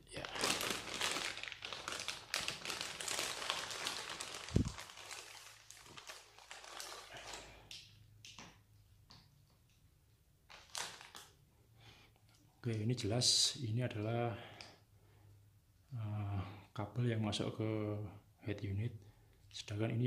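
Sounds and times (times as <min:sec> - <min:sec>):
plastic bag crinkling: 0:00.0 - 0:07.9, 0:10.5 - 0:11.4.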